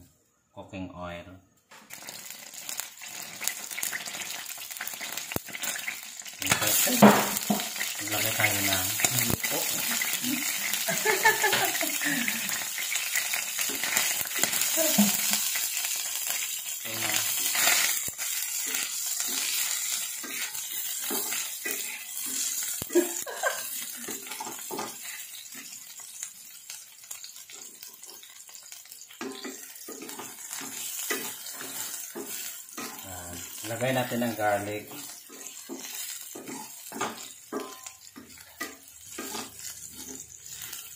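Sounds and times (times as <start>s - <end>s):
garlic sizzling in oil: 1.7s - 40.9s
wooden spatula scraping pan: 17.2s - 22.7s, 34.8s - 40.9s.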